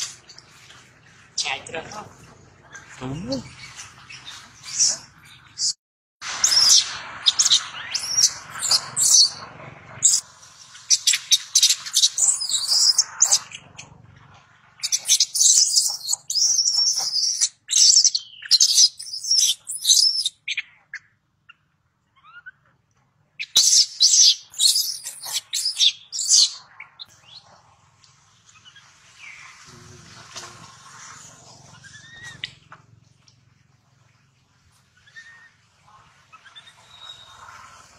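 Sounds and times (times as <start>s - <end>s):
baby monkey screaming: 6.4s - 9.4s, 11.0s - 13.4s, 14.8s - 20.3s, 23.6s - 26.5s, 31.6s - 32.6s, 35.0s - 35.6s.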